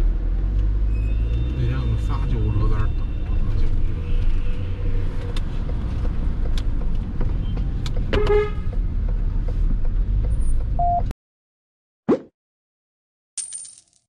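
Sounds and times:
vehicle rumbling in traffic: 0.0 - 11.1
car horn toot: 8.1 - 8.6.

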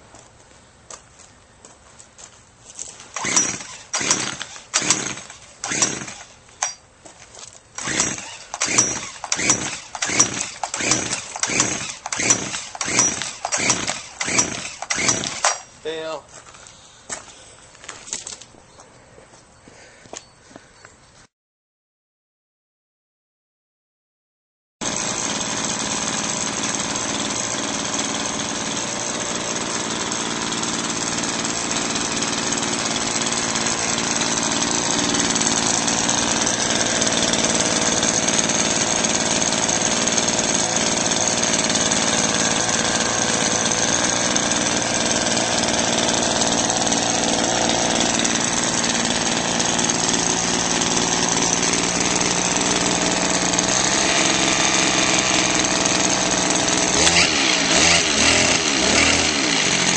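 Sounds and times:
small engine running: 3.2 - 6.8, 7.8 - 15.7, 24.8 - 59.9.

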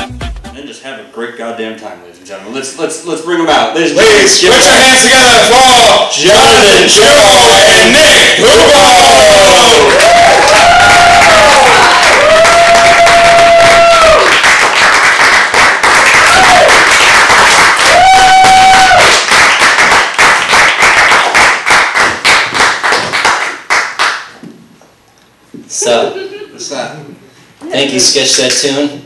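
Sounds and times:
audience cheering and whooping: 8.4 - 14.4, 16.1 - 17.0, 17.6 - 19.3
audience applauding: 8.6 - 24.3.

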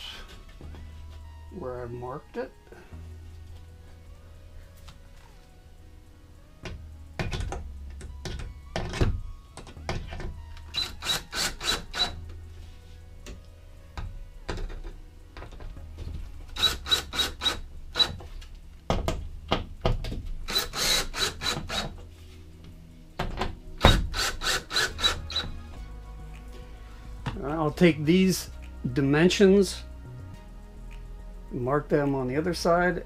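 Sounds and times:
drill driving screws into wood: 10.7 - 12.2, 16.5 - 18.2, 20.5 - 22.0, 23.8 - 25.5.

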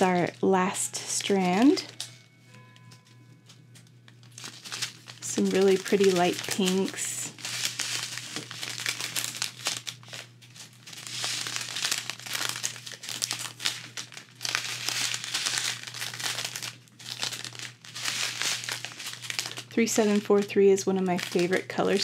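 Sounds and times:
plastic bags crinkling: 0.0 - 22.0.

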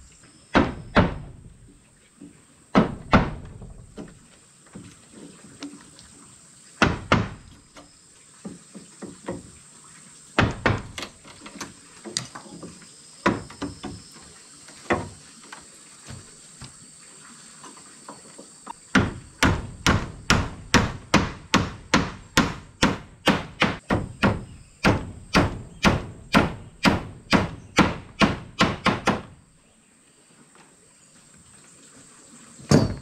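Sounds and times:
hammer driving nails into wood: 18.9 - 29.3.

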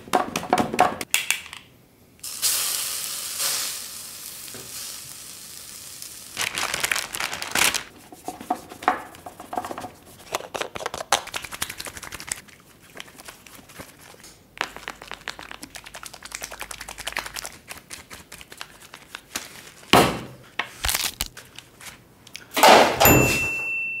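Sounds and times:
hiss: 2.2 - 6.4
crinkling and clicking packaging: 6.4 - 7.9, 13.2 - 19.9, 20.7 - 22.5
steady ringing tone: 23.0 - 24.0.

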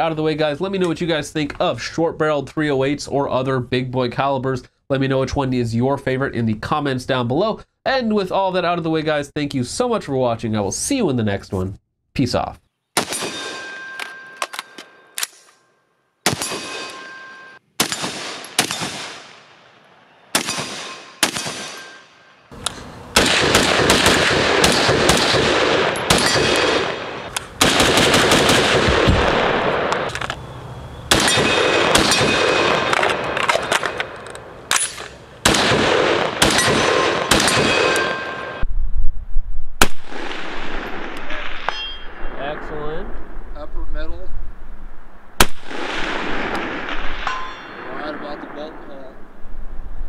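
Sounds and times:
rifle shots echoing: 13.0 - 14.8, 16.2 - 17.2, 17.8 - 38.6, 39.8 - 43.4, 45.4 - 48.6
rapid rifle fire: 17.8 - 19.5, 20.4 - 21.8, 23.2 - 29.9, 31.1 - 33.8, 35.4 - 38.2.

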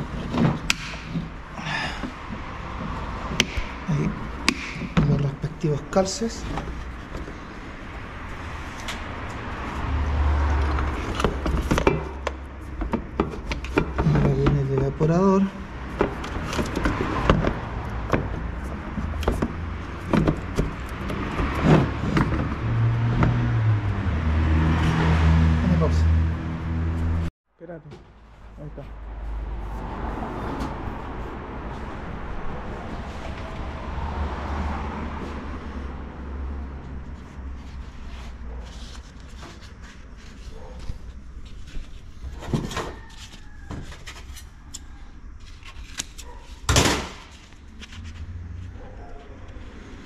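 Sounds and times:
parts knocking and clicking: 0.0 - 1.4, 2.0 - 5.4, 10.6 - 15.0, 15.8 - 23.4
knocks and clicks of plastic parts: 11.1 - 14.9, 19.1 - 22.6.

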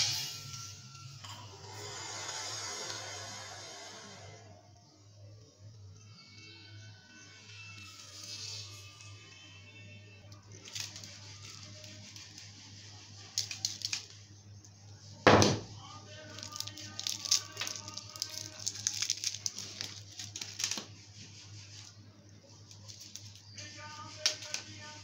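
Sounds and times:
plastic wrapper crinkling: 10.3 - 14.3, 15.9 - 25.0
loud knock: 15.3 - 15.7.

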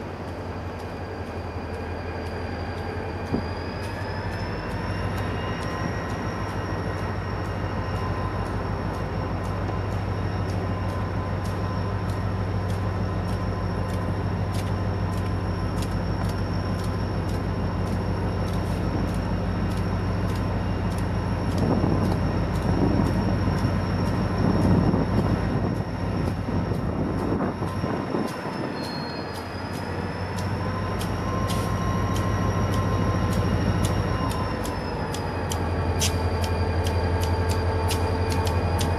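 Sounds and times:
diesel locomotive engine running: 0.0 - 38.9
wheels on rails: 0.0 - 38.9.

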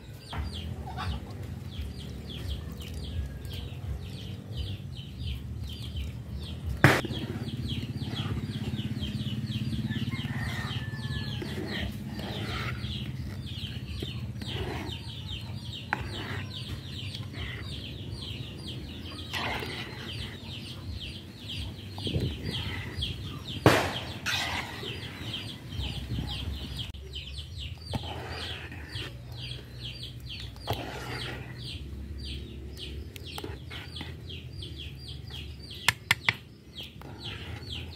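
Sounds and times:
steady low hum: 3.1 - 35.8
chickens clucking: 6.0 - 37.9.

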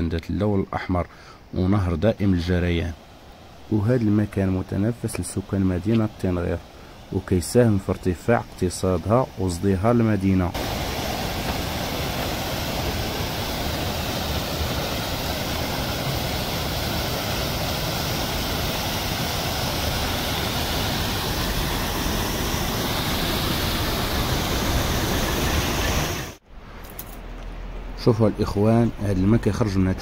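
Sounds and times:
water rushing over weirs: 2.9 - 26.4.

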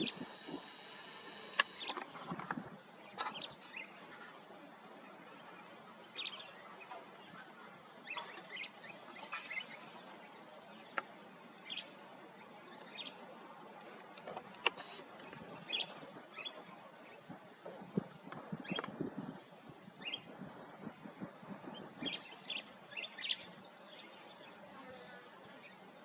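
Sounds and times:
sharp clicks: 0.0 - 2.1
small songbirds chirping: 5.0 - 13.4, 15.2 - 17.4, 18.2 - 24.6.

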